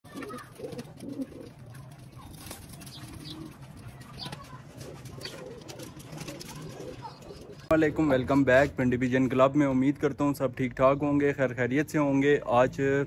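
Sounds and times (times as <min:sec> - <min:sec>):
pigeons cooing: 0:00.1 - 0:07.8.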